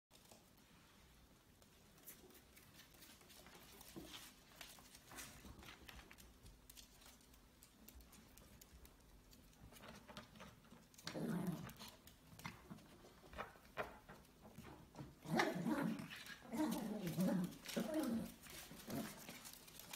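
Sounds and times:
dog claws clicking on floor: 1.6s - 19.9s.

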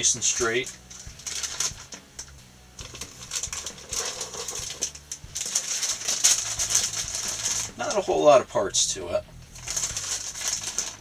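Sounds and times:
plastic bag crinkling: 0.0s - 2.0s, 2.8s - 8.0s, 9.6s - 11.0s.

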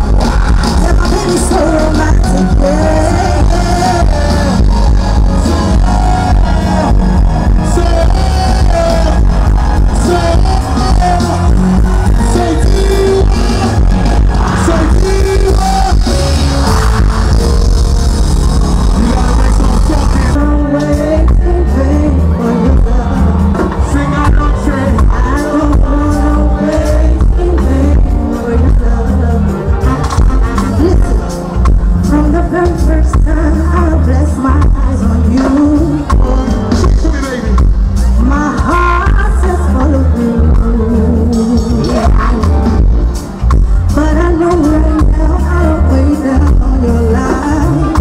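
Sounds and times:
strong steady bass: 0.0s - 22.0s
live band playing: 0.0s - 48.0s
people singing into microphones: 0.0s - 48.0s.

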